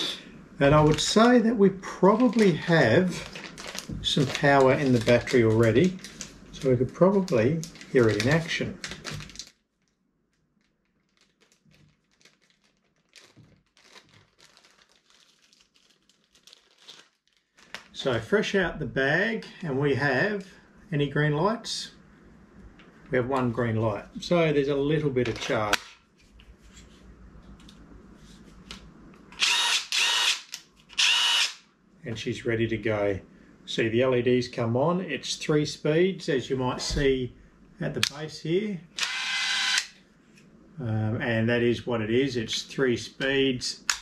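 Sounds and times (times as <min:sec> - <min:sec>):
plastic bag crinkling: 0:00.7 - 0:18.2
impact driver motor whine: 0:29.4 - 0:30.4, 0:31.0 - 0:31.6, 0:39.0 - 0:39.9.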